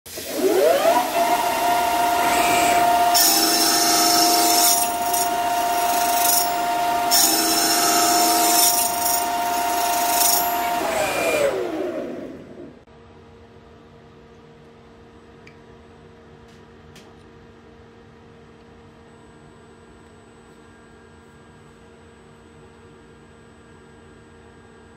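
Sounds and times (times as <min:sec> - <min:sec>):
lathe spindle whine: 0:00.2 - 0:12.9
saw blade cutting aluminium screech: 0:02.1 - 0:11.1.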